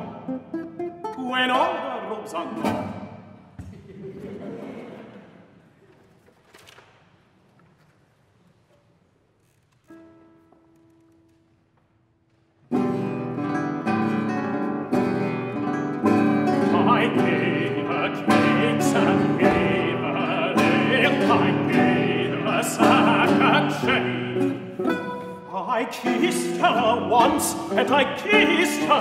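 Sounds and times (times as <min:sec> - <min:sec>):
classical guitar strumming and plucking: 0:00.0 - 0:03.0, 0:09.7 - 0:11.6, 0:12.7 - 0:29.0.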